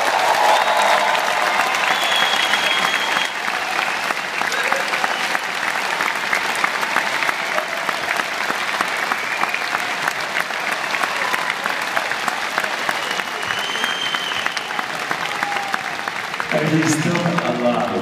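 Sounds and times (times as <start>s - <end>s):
audience applauding: 0.0s - 18.0s
high whistle from crowd: 0.4s - 4.1s, 9.1s - 9.8s, 13.0s - 14.9s.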